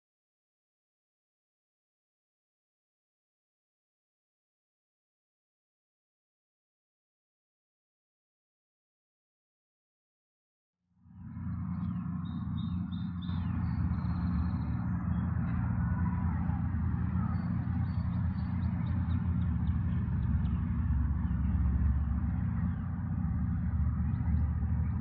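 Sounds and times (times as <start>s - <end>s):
low street rumble: 11.0s - 25.0s
small birds chirping: 11.4s - 25.0s.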